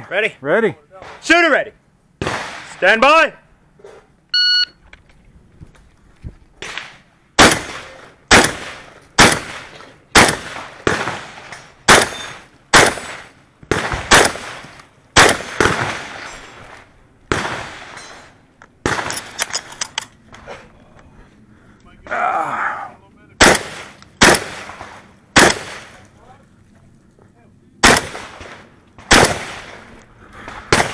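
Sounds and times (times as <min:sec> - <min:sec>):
shotgun blasts echoing: 0:02.2 - 0:02.8, 0:06.6 - 0:16.5, 0:17.3 - 0:18.2, 0:18.8 - 0:19.4, 0:23.4 - 0:26.0, 0:27.8 - 0:29.9, 0:30.5 - 0:30.9.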